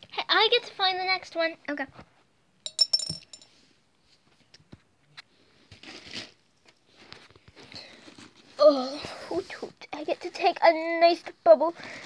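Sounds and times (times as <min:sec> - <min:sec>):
ringing jingle: 0:02.7 - 0:03.4.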